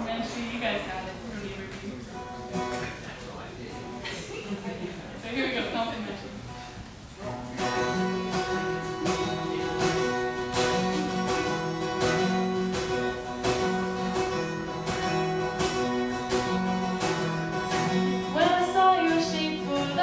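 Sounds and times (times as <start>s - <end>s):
acoustic guitar strumming: 6.4s - 20.0s.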